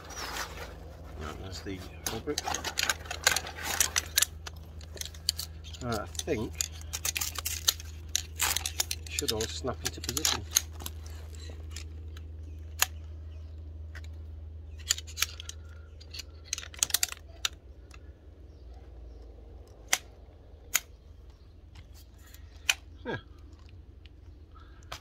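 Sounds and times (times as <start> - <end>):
steady low rumble: 0.0 - 25.0
chair poles clicking into hubs: 1.4 - 13.0, 14.0 - 18.0.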